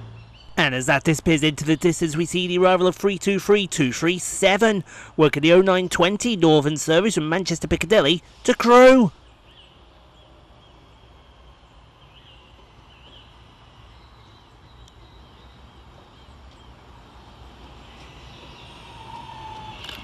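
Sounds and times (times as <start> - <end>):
bird chirps: 9.2 - 16.9
electric train approaching: 9.4 - 20.0
train whine: 9.7 - 20.0.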